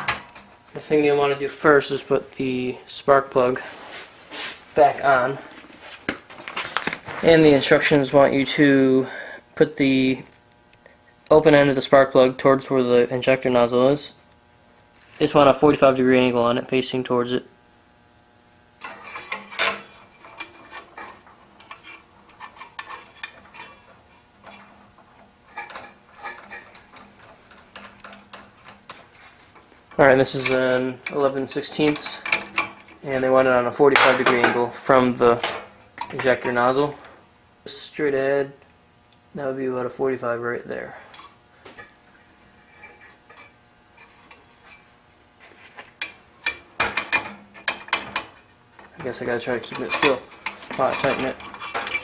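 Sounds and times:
metal parts clinking and scraping: 18.8 - 29.4, 46.0 - 52.0.

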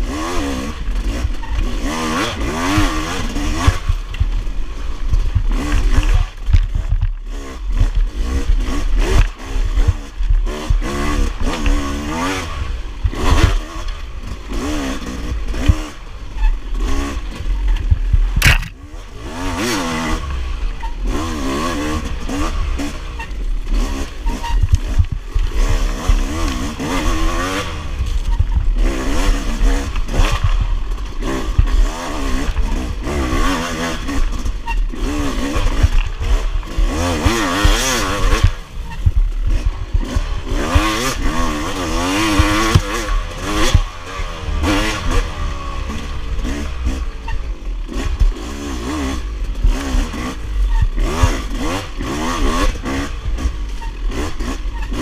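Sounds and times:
dirt bike engine revving: 0.0 - 55.0
sharp knock: 18.4 - 18.8.

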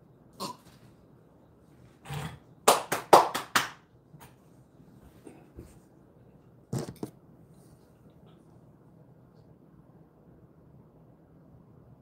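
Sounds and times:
sharp hand claps: 2.7 - 4.4.

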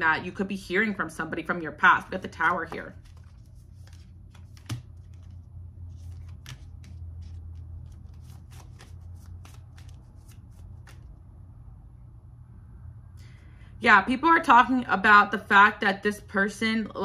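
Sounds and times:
low steady hum: 0.0 - 17.0
cards being shuffled: 2.3 - 11.2.

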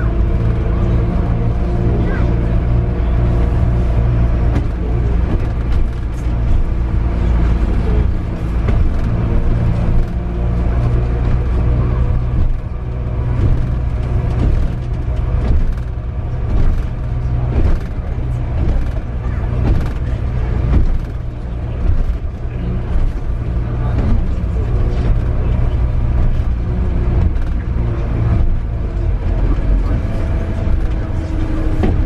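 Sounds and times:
bus engine drone: 0.0 - 32.0.

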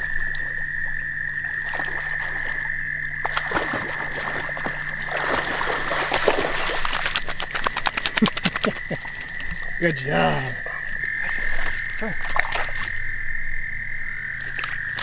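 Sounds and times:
dog splashing in water: 1.4 - 9.8, 11.3 - 13.0
frog trilling: 7.5 - 15.0.

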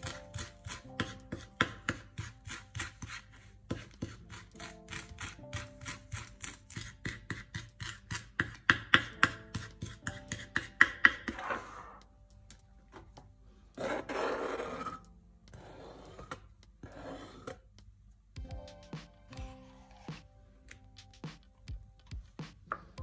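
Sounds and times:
knife chopping on cutting board: 0.0 - 11.7
knife blade scraping board: 13.8 - 17.6.

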